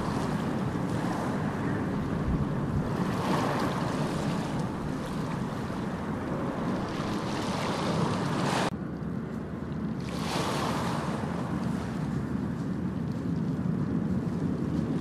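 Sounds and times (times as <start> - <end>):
steady rushing noise: 0.0 - 8.8.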